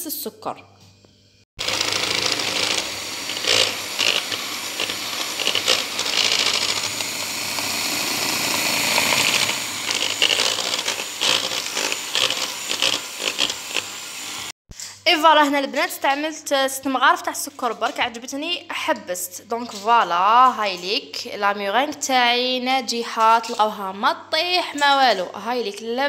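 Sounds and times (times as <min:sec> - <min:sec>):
electric hand mixer whipping: 0:01.6 - 0:14.6.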